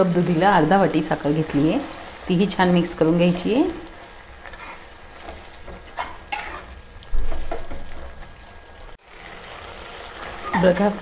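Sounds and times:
metal spatula scraping a pan: 4.4s - 6.8s, 10.1s - 11.0s.

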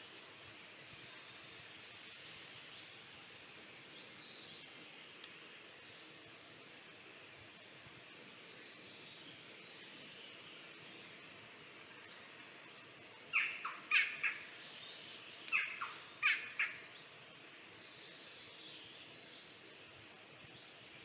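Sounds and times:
faint steady hiss: 0.0s - 21.0s
bird calling: 13.3s - 14.6s, 15.5s - 17.0s.

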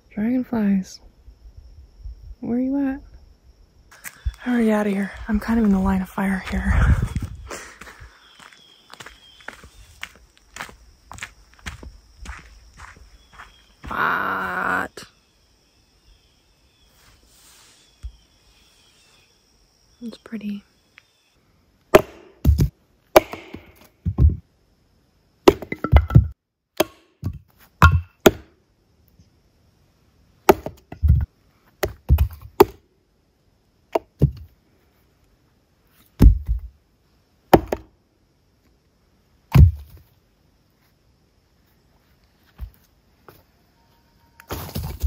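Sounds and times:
hatchet chopping firewood: 21.9s - 24.4s, 25.4s - 28.6s, 30.5s - 32.8s, 33.9s - 34.5s, 36.2s - 36.7s, 37.5s - 37.9s, 39.5s - 39.8s.

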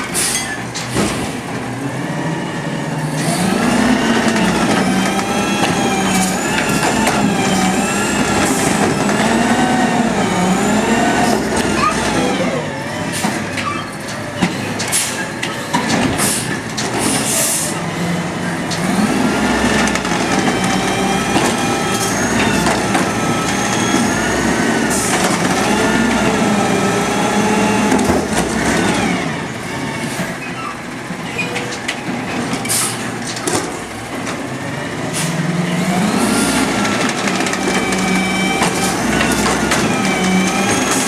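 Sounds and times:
truck hydraulics whining: 0.0s - 31.9s, 32.5s - 41.0s
trash cart clanking: 3.2s - 26.5s, 30.2s - 41.0s.

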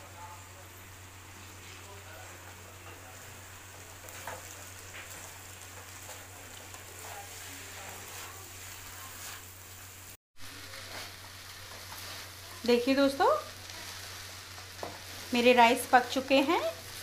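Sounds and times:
rice sizzling in a pan: 0.0s - 17.0s
spatula scraping pan: 4.0s - 9.5s.

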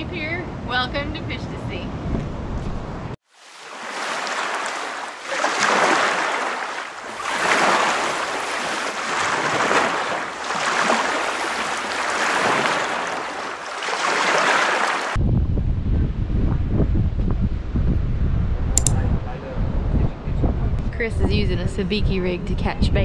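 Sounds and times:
ocean surf breaking: 3.3s - 15.2s.

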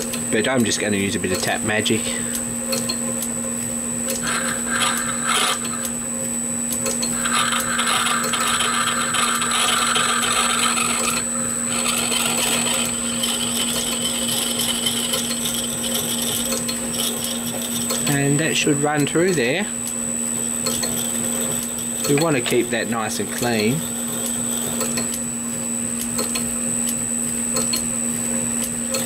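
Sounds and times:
lathe motor hum and whine: 0.0s - 29.0s
high-pitched metal cutting noise: 4.1s - 26.5s.

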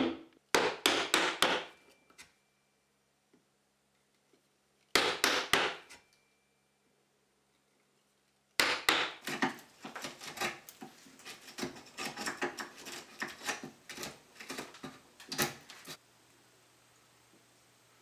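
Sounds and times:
chisel knocking into wood: 0.0s - 1.7s, 8.6s - 9.6s.

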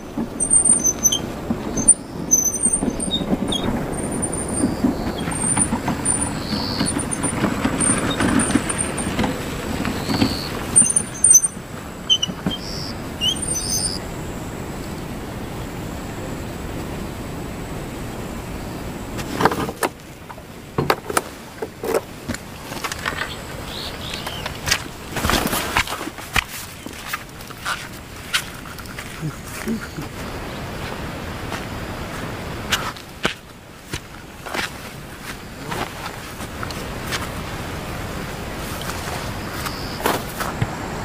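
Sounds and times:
knocks and clatters: 0.0s - 12.7s, 19.2s - 29.8s
steady hiss: 0.0s - 41.0s.

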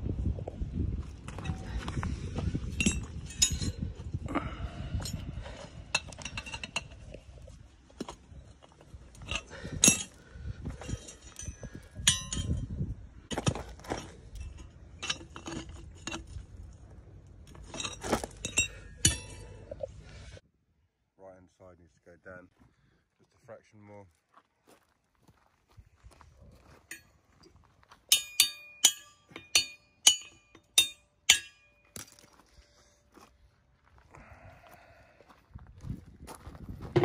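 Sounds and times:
metallic clinks and knocks: 2.6s - 4.0s, 4.9s - 7.3s, 8.0s - 19.9s, 26.8s - 27.2s, 28.1s - 32.6s.

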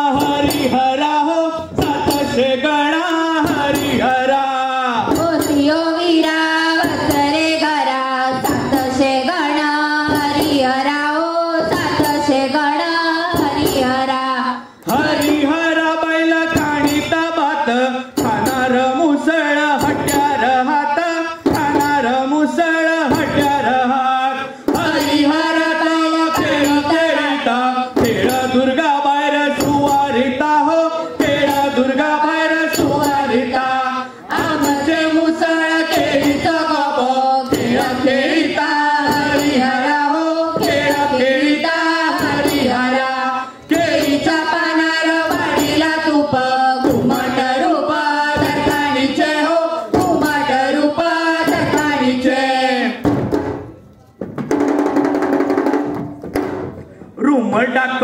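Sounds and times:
person singing folk song: 0.0s - 53.1s
percussion with steady beat: 0.0s - 57.4s.

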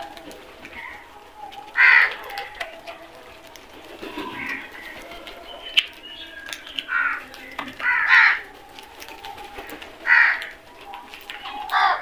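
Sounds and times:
crows cawing: 0.0s - 2.7s, 6.8s - 8.5s, 9.7s - 10.7s, 11.7s - 12.0s.

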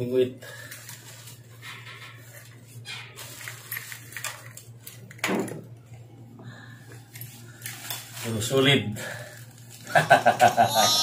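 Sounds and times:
steady low hum: 3.5s - 11.0s.

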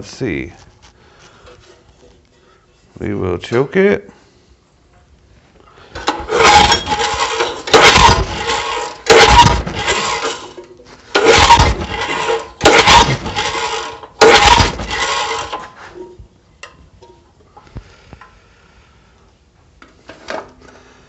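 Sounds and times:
engine cranking: 6.0s - 15.7s
generator recoil starter pulls: 6.0s - 16.0s.

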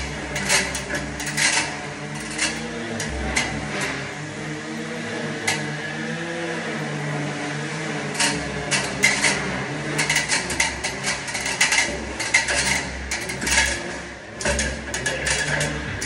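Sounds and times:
metal tools clinking on ladder: 0.0s - 4.0s, 8.2s - 16.0s
steady low hum: 0.0s - 16.0s.

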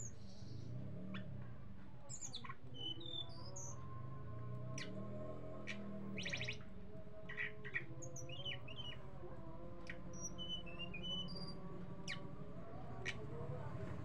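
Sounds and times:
songbird calling: 2.1s - 3.8s, 5.6s - 9.0s, 9.9s - 12.3s.

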